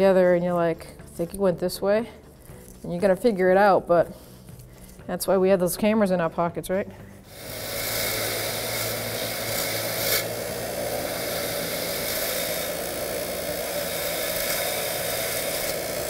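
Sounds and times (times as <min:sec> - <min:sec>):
wire wheel scrubbing rust: 0:07.3 - 0:16.0.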